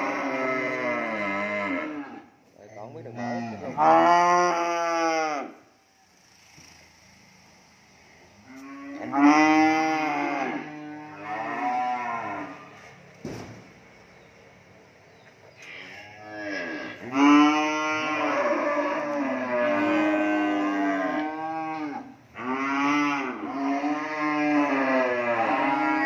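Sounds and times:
young cattle mooing: 0.0 - 2.3, 3.2 - 5.6, 8.4 - 12.9, 15.6 - 26.0.

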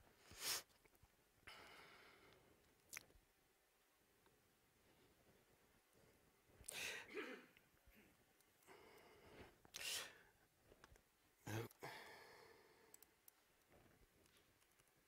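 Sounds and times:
puffs of breath on microphone: 0.2 - 0.7.

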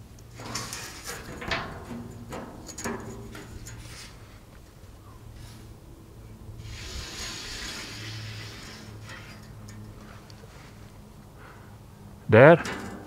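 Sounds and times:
chalk scraping on rusty steel: 6.6 - 9.8.

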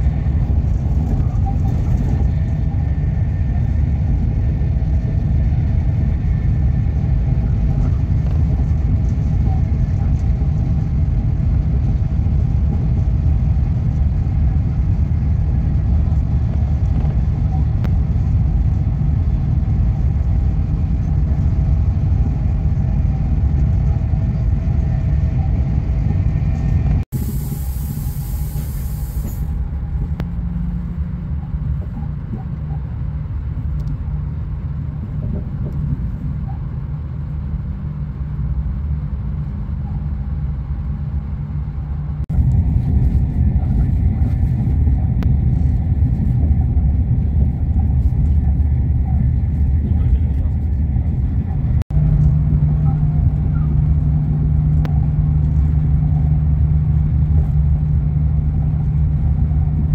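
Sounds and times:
train rumble inside carriage: 0.0 - 59.9
short hiss: 27.2 - 29.5.

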